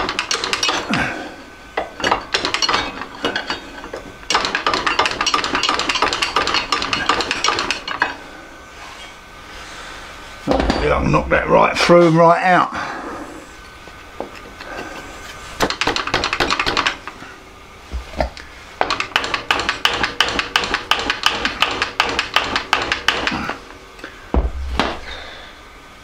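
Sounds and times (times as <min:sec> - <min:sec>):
deep thump: 0:24.3 - 0:25.0.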